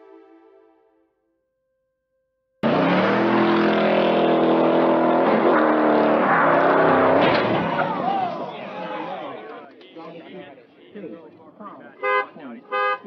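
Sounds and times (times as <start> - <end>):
car engine revving hard: 2.6 - 8.1.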